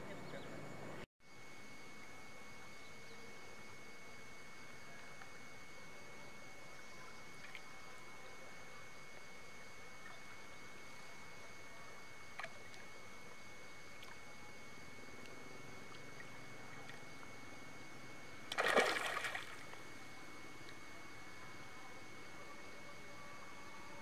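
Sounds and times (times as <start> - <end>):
fish splashing in water: 18.5 - 19.8.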